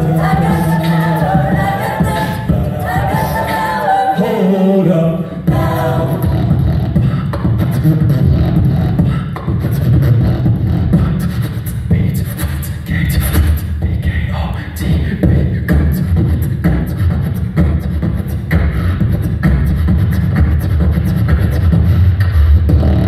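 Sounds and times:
beatboxed beat: 0.0 - 23.0
low vocal bass: 0.0 - 23.0
vocal harmonies singing: 0.0 - 23.0.

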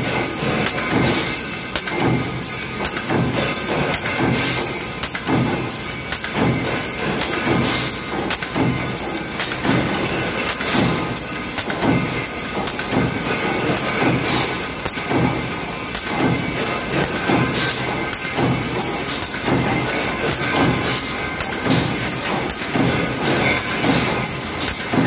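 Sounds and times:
pneumatic feeder working: 0.0 - 25.0
power press stamping: 0.1 - 25.0.

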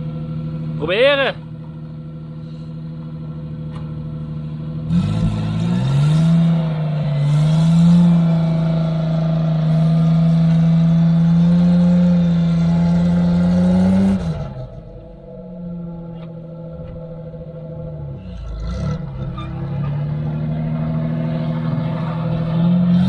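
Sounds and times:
truck engine revving under load: 2.3 - 23.0.

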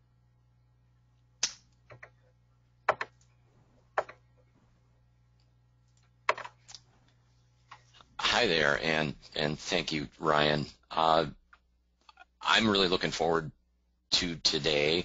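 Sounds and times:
faint low hum: 0.0 - 15.0
sharp clicks and taps: 4.0 - 4.2.

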